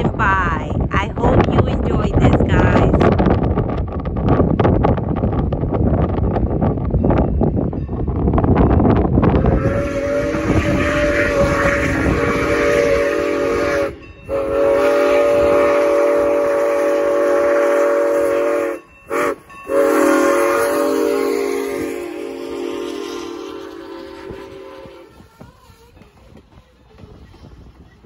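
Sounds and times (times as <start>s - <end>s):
low train rumble: 0.0s - 28.0s
steam locomotive whistle: 9.3s - 26.2s.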